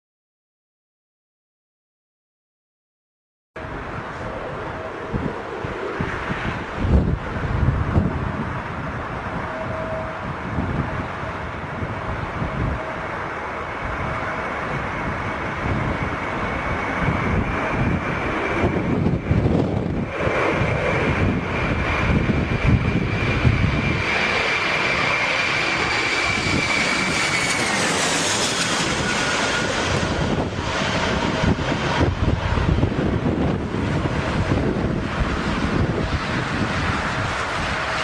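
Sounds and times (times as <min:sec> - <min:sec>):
jet engines whining: 0:03.6 - 0:38.0
wind rumble on microphone: 0:03.6 - 0:38.0.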